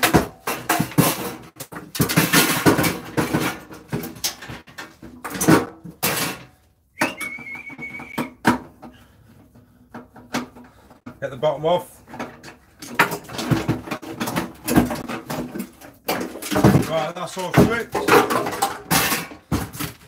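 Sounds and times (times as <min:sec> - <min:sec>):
metal panel clanking and rattling: 0:12.1 - 0:20.0.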